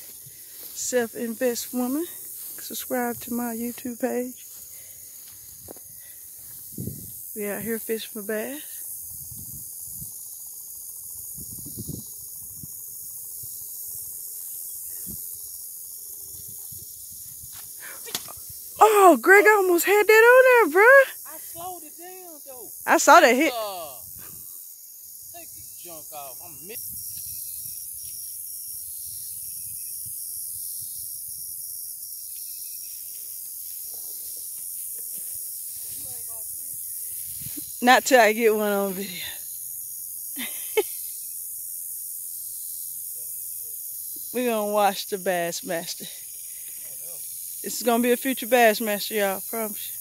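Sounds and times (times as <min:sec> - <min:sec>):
high-pitched hiss: 0:00.0 - 0:50.0
insect chorus: 0:00.0 - 0:50.0
pulsed insect chirp: 0:00.0 - 0:50.0.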